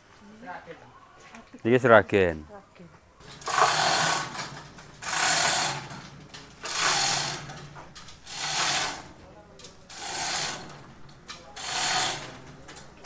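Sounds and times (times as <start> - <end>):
chain hoist rattling and ratcheting: 3.2 - 13.0.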